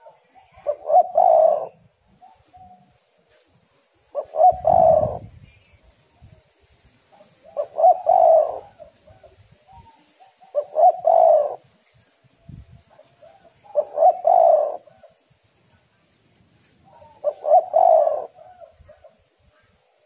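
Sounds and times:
dove cooing: 0.0s - 3.0s, 4.0s - 5.4s, 7.1s - 11.8s, 12.9s - 15.2s, 16.8s - 19.3s.

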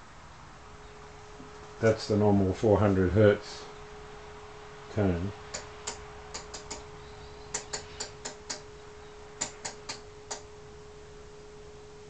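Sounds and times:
faint steady test tone: 0.0s - 12.0s
rotary switch clicking: 5.5s - 6.9s, 7.5s - 8.6s, 9.4s - 10.5s.

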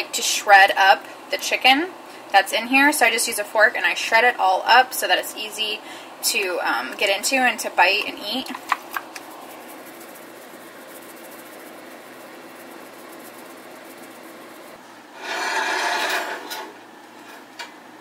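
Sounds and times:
herb shaker rattling: 7.2s - 14.8s
skillet scraping on stove grate: 11.6s - 17.5s.

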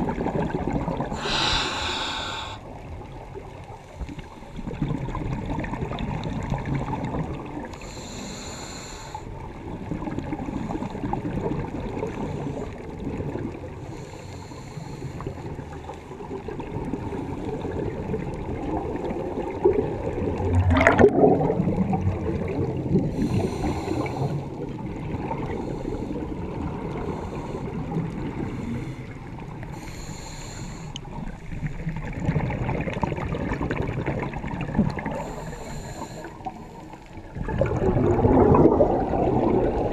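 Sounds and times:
gurgle of exhaled bubbles: 0.0s - 8.0s, 9.3s - 13.9s, 15.2s - 29.8s, 31.0s - 39.9s
regulator hissing inhale: 1.1s - 2.7s, 7.7s - 9.4s, 13.8s - 15.5s, 23.1s - 24.6s, 25.5s - 26.3s, 27.0s - 27.8s, 28.4s - 31.1s, 35.1s - 37.0s.

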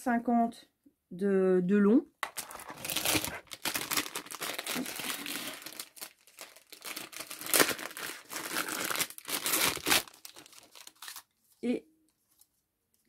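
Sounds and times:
plastic bag crinkling: 2.2s - 11.3s.

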